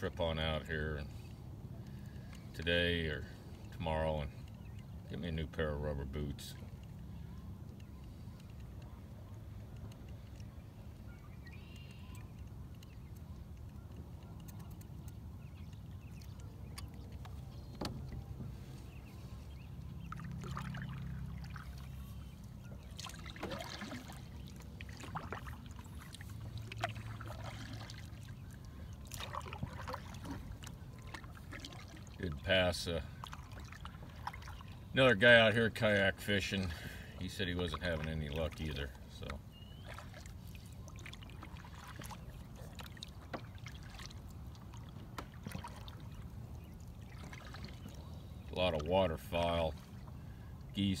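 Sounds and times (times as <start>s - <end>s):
water dripping off paddle: 1.8s - 50.9s
kayak paddle strokes in water: 5.7s - 51.0s
small splashes: 14.3s - 35.4s, 36.4s - 50.9s.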